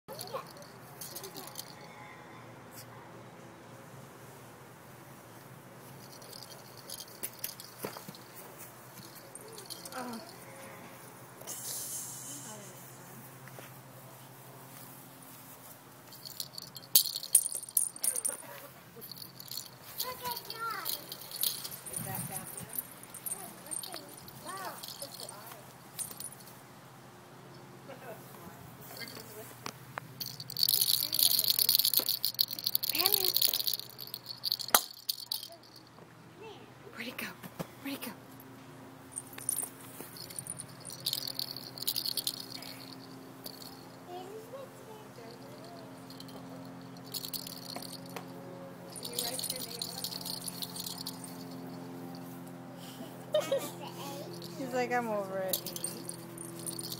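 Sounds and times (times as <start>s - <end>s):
toy ball rattling: 0.1s - 1.8s, 6.0s - 8.3s, 9.0s - 10.4s, 16.1s - 26.5s, 30.2s - 35.9s, 39.1s - 44.1s, 45.2s - 48.3s, 48.9s - 52.4s, 54.2s - 56.9s.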